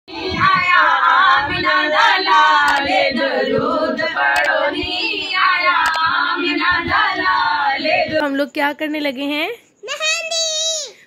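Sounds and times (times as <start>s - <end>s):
women singing a hymn together: 0.1s - 8.4s.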